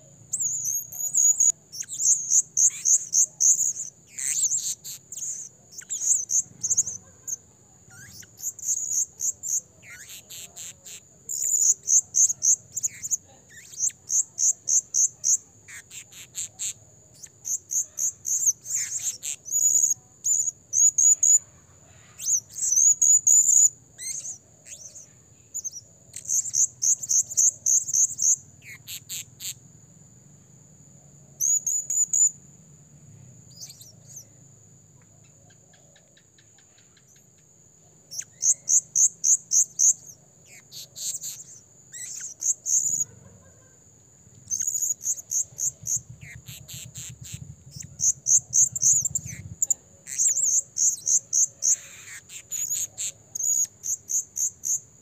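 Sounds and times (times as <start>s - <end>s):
parrot shrill chirps: 0.4s - 9.0s, 44.5s - 54.6s.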